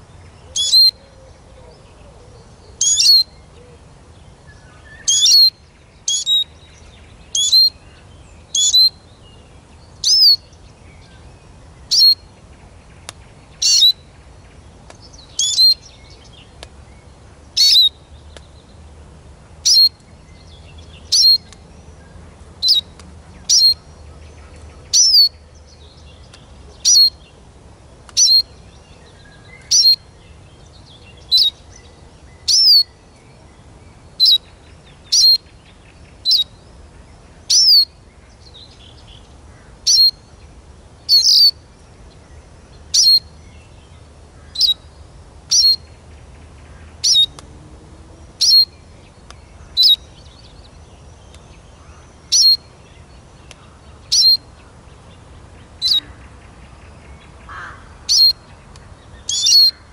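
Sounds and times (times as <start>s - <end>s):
bird high call notes: 0.5s - 1.2s.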